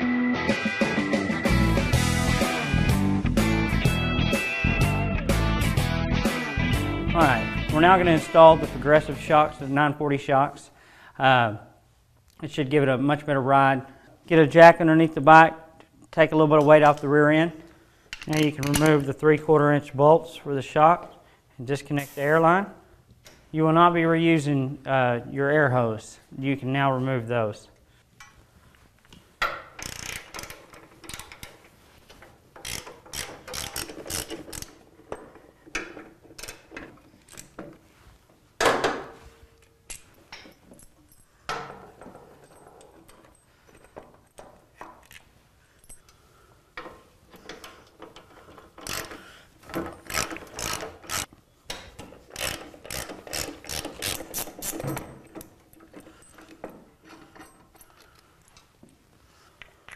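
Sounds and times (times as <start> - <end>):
hand ratchet clicking: 29.1 - 31.7, 32.5 - 37.7, 46.8 - 58.7.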